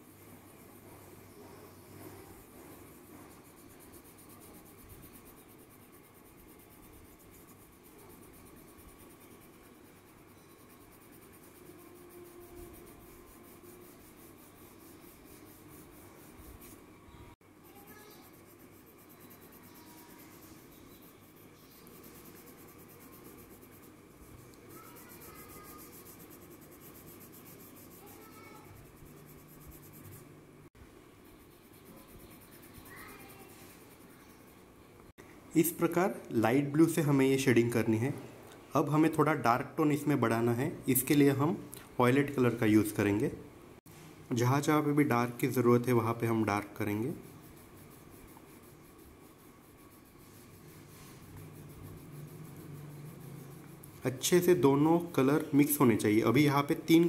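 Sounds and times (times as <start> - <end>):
pencil shading on paper: 0.0 - 16.8, 17.6 - 30.4, 31.2 - 34.7, 44.7 - 57.0.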